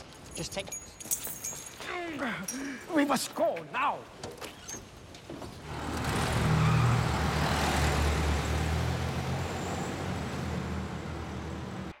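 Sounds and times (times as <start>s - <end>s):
old car engine pulling away: 5.6s - 12.0s.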